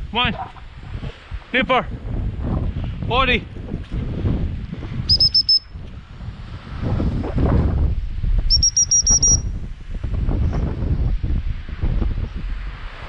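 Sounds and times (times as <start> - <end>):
high whistle pips: 5.1 - 5.7, 8.5 - 9.4.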